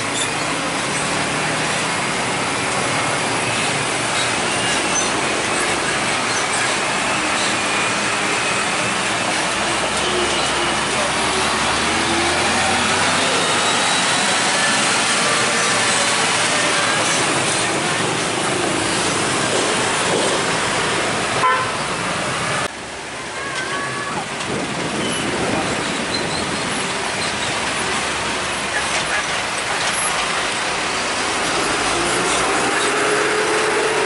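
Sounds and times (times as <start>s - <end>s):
dump trucks rolling past: 0.0s - 34.0s
truck horn toots: 21.4s - 21.8s.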